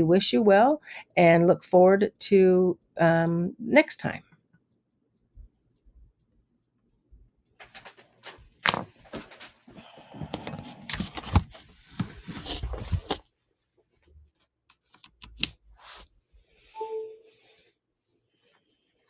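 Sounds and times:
rustling handling noise: 0:10.4 - 0:15.0.

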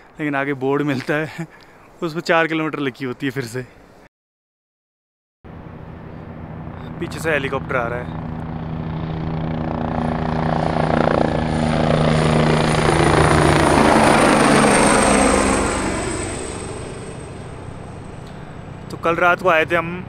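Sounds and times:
helicopter flying past: 0:05.5 - 0:20.0.

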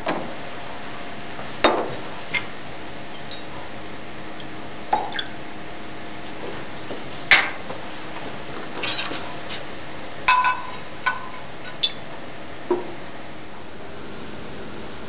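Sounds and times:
steady hiss: 0:00.0 - 0:15.0
metal spoon clinking glassware: 0:10.3 - 0:11.4.

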